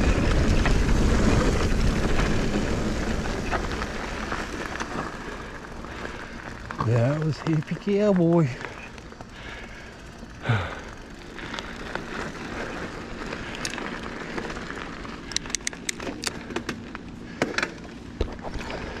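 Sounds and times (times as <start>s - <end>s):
bike tyres crunching on gravel: 0.0s - 19.0s
sharp clicks and ticks: 15.3s - 16.8s.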